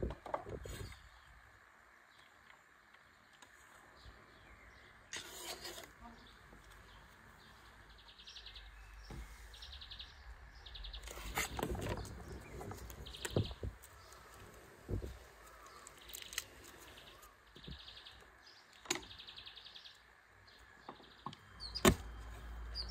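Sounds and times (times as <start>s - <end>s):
small bird chirping trills: 0.6s - 22.9s
papery garlic skin crackling: 15.3s - 17.3s.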